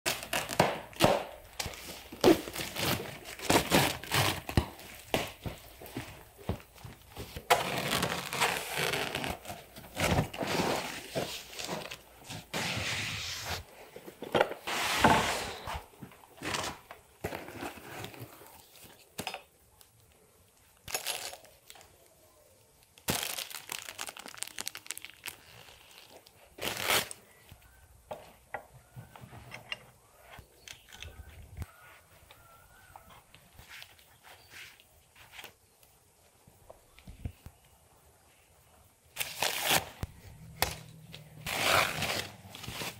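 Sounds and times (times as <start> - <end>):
cardboard and packing crinkling: 0.1 - 19.2, 20.8 - 22.1, 22.9 - 27.4, 41.4 - 42.9.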